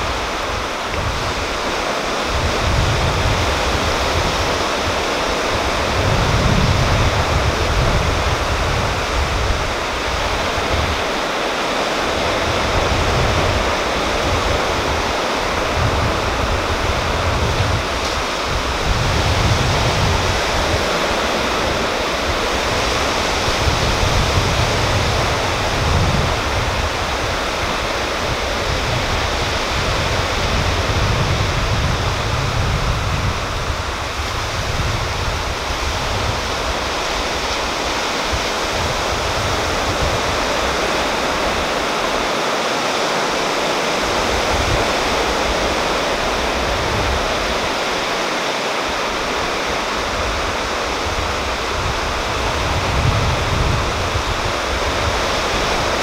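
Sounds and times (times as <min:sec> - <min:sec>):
surf washing onto rocky beach: 0:00.0 - 0:56.0
wind rumble on microphone: 0:00.0 - 0:56.0.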